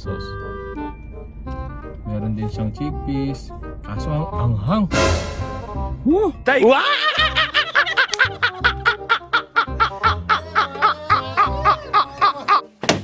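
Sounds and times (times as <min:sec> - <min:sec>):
background music: 0:00.0 - 0:13.0
men laughing hard: 0:06.7 - 0:12.7.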